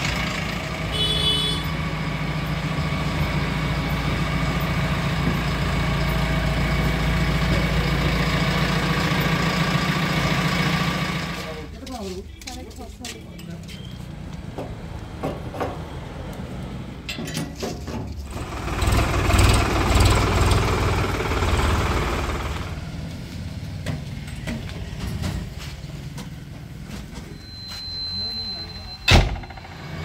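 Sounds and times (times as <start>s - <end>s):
diesel engine idling: 0.0s - 11.8s, 18.1s - 30.0s.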